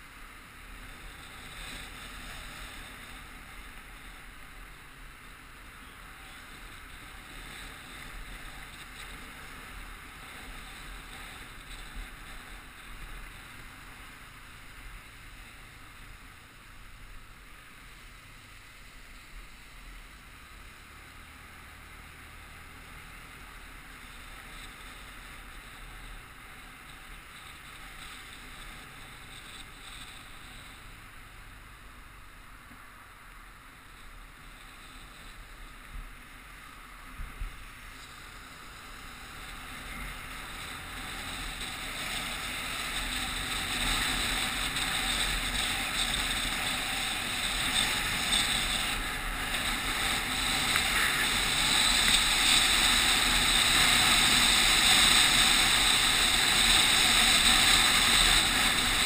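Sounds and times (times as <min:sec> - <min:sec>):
road noise: 0:00.0 - 0:59.0
tyre hiss on wet road: 0:00.0 - 0:59.0.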